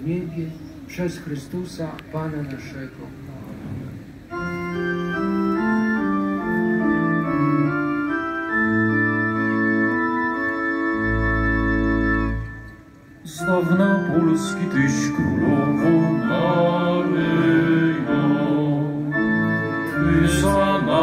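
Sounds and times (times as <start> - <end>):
organ playing hymn over loudspeakers: 4.3 - 21.0.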